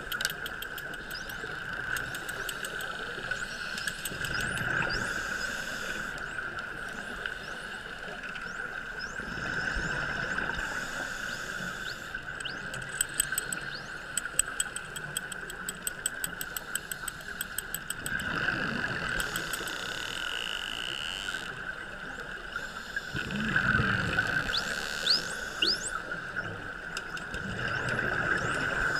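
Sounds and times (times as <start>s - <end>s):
dolphin click train: 0.0s - 8.5s, 10.7s - 21.6s, 24.3s - 28.0s
dolphin whistles: 24.5s - 26.0s.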